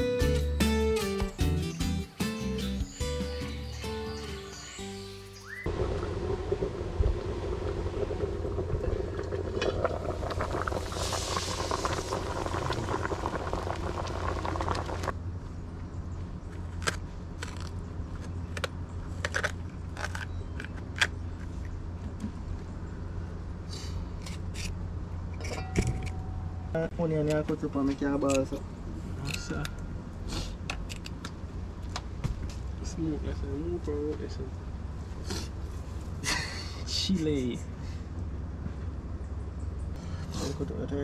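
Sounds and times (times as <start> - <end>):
low rumble: 5.6 - 15.4
wood fire crackling: 5.7 - 15.2.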